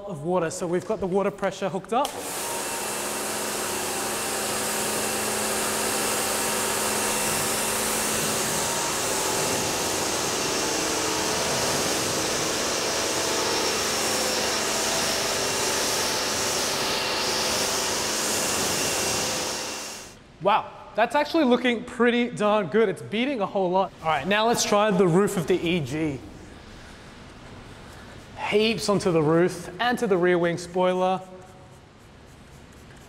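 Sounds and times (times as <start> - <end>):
pump motor hum: 2.1 - 20.2
water jet spraying: 2.3 - 20.2.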